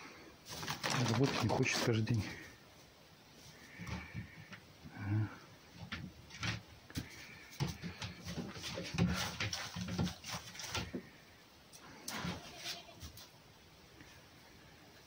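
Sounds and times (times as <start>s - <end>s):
paws scrabbling on wooden boards: 0.5s - 2.0s, 5.7s - 11.1s.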